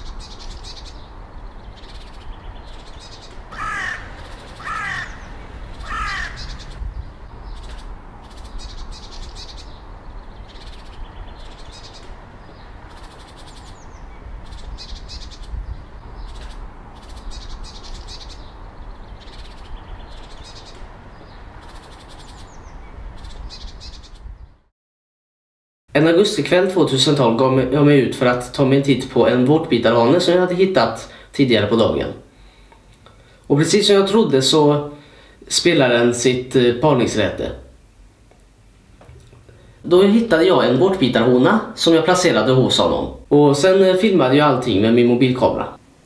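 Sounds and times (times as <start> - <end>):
bush-cricket buzzing song: 0.0 - 24.4
crow cawing: 3.5 - 6.8.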